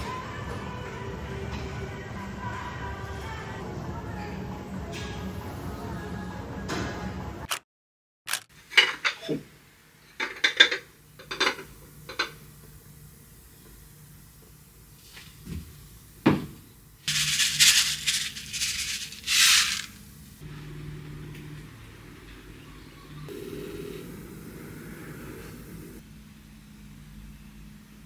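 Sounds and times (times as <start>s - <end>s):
rustling scraping noise: 17.1s - 20.0s.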